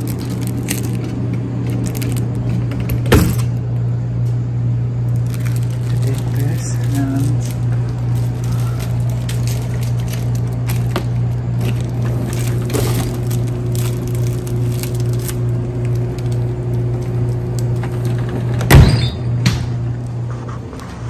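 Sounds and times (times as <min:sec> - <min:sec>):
refrigerator hum: 0:00.0 - 0:21.0
glass door thumping shut: 0:18.6 - 0:19.6.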